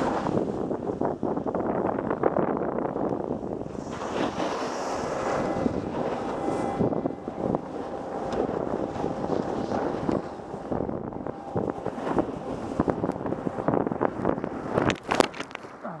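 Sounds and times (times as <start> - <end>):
wind buffeting microphone: 0.0 - 16.0
snowboard scraping on snow: 3.7 - 6.9, 7.8 - 10.4.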